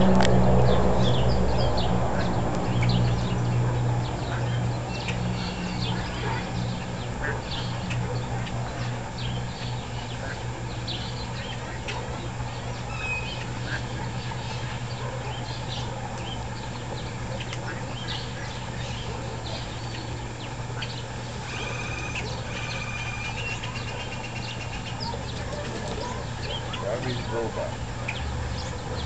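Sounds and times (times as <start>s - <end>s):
steady low hum: 0.0s - 21.5s
birds calling: 2.8s - 29.0s.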